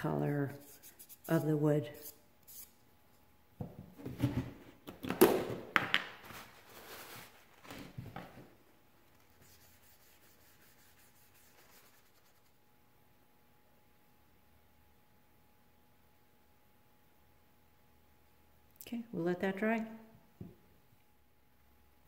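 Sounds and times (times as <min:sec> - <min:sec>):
objects knocking on wooden workbench: 0:03.6 - 0:06.2.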